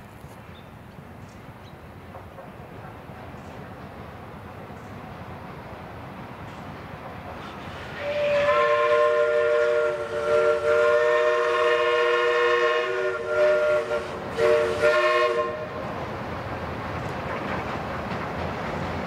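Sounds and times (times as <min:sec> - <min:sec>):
steam locomotive whistle blasts: 0:07.8 - 0:15.8.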